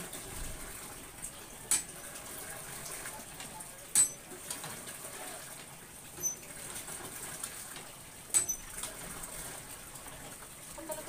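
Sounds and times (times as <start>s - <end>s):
metal utensil clinking on pan: 3.9s - 4.2s, 8.3s - 8.6s.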